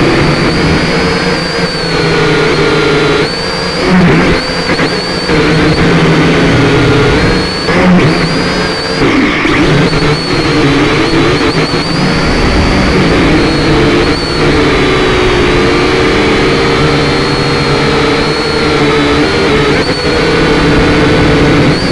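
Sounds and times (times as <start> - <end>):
quadcopter propellers whirring: 0.0 - 21.9.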